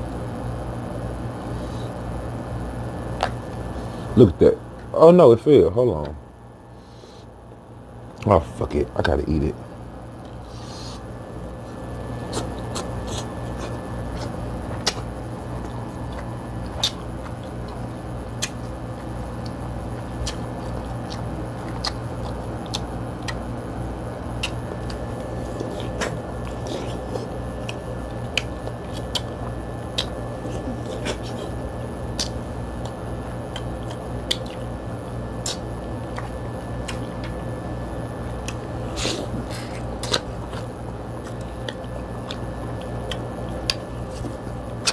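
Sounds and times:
steady low hum: 0.0s - 44.9s
chewing and mouth sounds: 11.7s - 23.5s, 24.3s - 37.5s, 38.4s - 44.9s.

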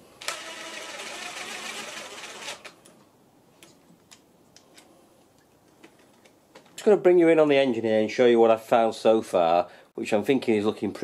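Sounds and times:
cordless drill running: 0.2s - 2.8s.

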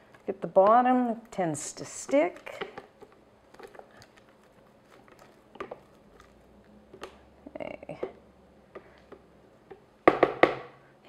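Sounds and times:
spatula scraping plastic bowl: 0.0s - 7.3s.

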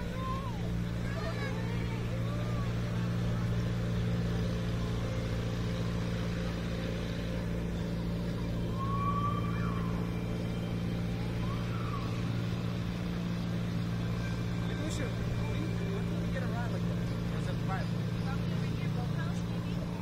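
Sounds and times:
boat engine droning: 0.0s - 20.0s
faint whistles: 8.6s - 12.3s.

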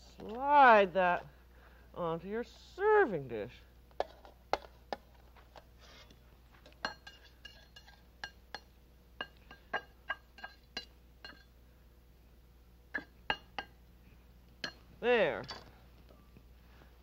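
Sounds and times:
metal utensil clinking on dish: 6.8s - 11.5s.

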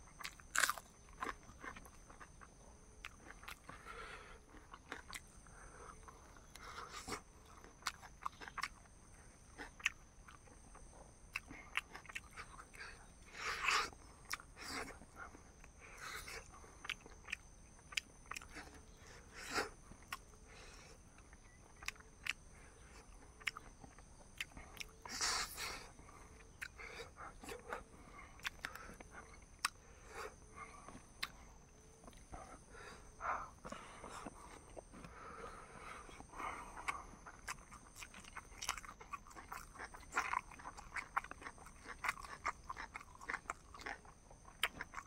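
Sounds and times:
food crunching: 0.0s - 14.8s, 21.1s - 27.8s, 28.4s - 33.0s, 36.1s - 45.0s
person chewing food: 0.0s - 45.0s.

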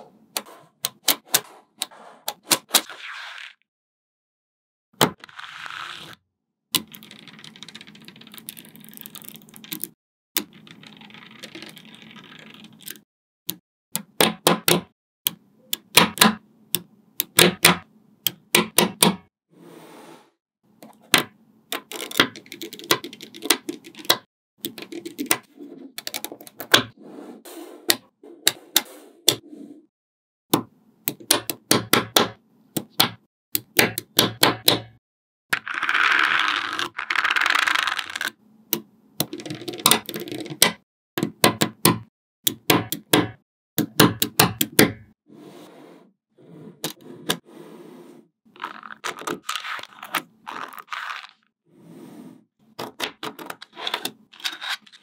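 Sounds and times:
balls rattling and rolling: 6.8s - 13.0s, 35.6s - 38.4s.

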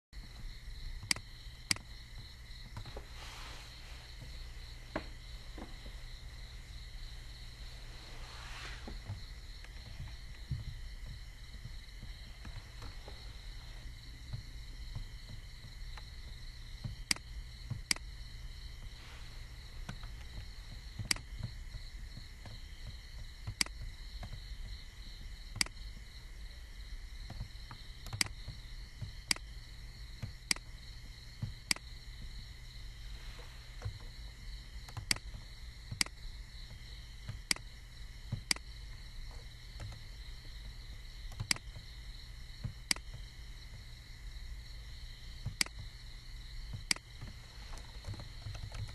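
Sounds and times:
electrical hum: 0.2s - 48.9s
computer mouse clicking: 1.0s - 1.9s, 16.9s - 18.1s, 19.8s - 21.5s, 23.4s - 24.4s, 25.5s - 25.8s, 28.0s - 29.5s, 30.2s - 30.7s, 31.4s - 31.9s, 34.8s - 36.2s, 37.3s - 37.7s, 38.3s - 38.7s, 41.3s - 41.8s, 42.7s - 43.2s, 45.4s - 45.9s, 46.7s - 48.9s.

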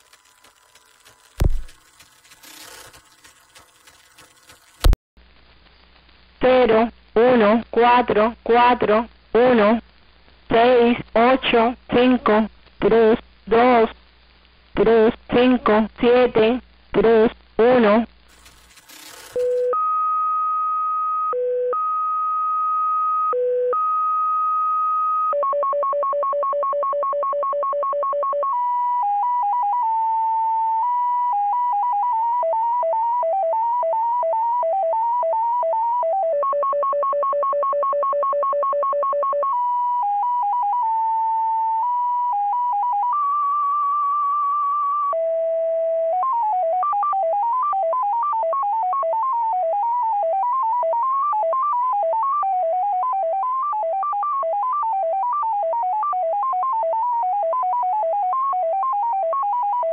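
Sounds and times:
beeping data tones: 0.0s - 5.0s, 18.3s - 20.0s.

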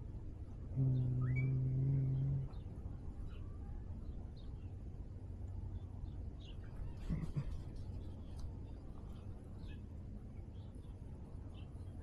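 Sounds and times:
low steady rumble: 0.0s - 12.0s
faint bird chirps: 0.7s - 4.8s.

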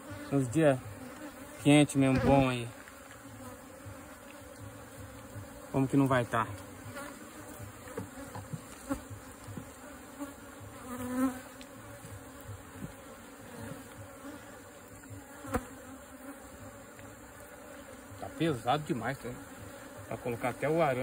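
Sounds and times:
honeybees buzzing: 0.0s - 21.0s.

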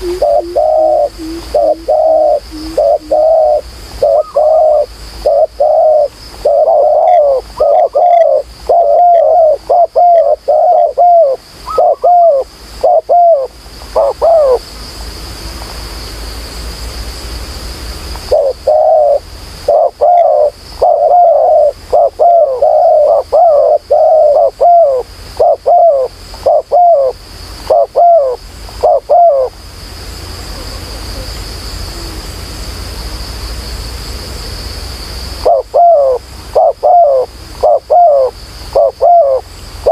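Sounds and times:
doves cooing: 0.0s - 14.6s, 18.2s - 29.6s, 35.4s - 39.9s
steady high hiss: 0.0s - 39.9s.

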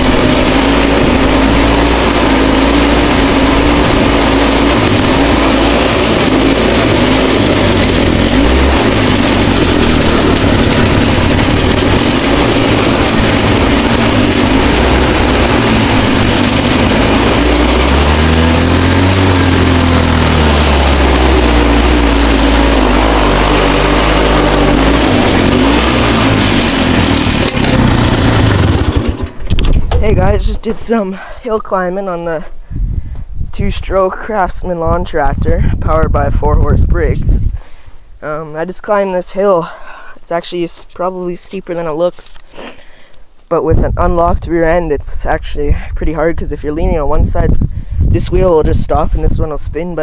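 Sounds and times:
lawn tractor engine running hard: 0.0s - 30.4s.

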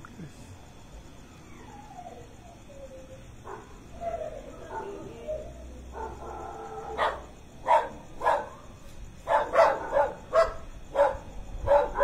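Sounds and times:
dogs barking: 5.9s - 12.0s.

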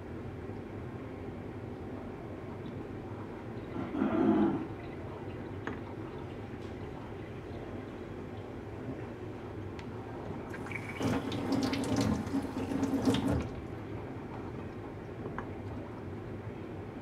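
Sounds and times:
water running into steel sink: 10.5s - 13.7s.

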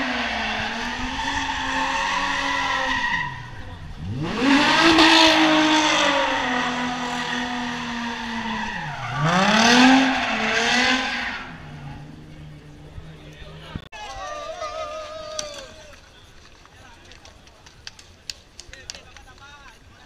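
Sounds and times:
car engine at high revs: 0.0s - 13.8s.

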